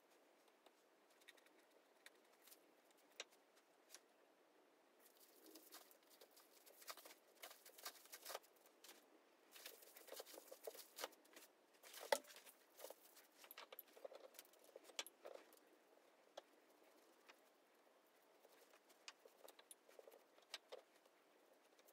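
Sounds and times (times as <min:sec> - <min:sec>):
rustles and taps on bamboo mat: 0:05.5 - 0:15.6.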